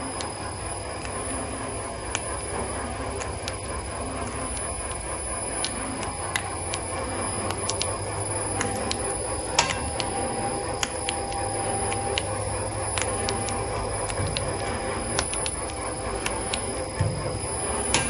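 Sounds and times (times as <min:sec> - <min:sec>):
machine low hum: 0:00.0 - 0:18.0
sharp ticks: 0:04.3 - 0:17.0.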